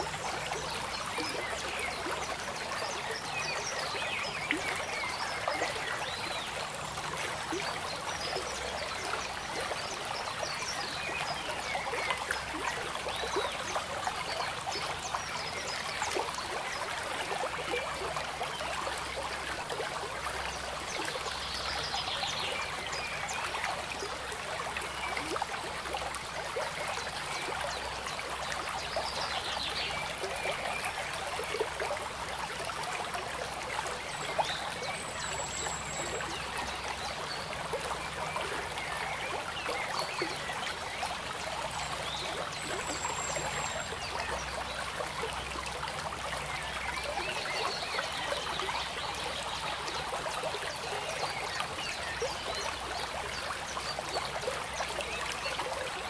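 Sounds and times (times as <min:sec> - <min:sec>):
water trickling and gurgling: 0:00.0 - 0:56.0.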